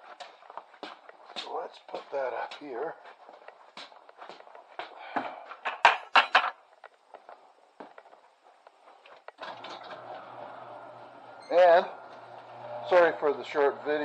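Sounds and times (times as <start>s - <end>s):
objects knocked and set down: 5.2s - 6.6s.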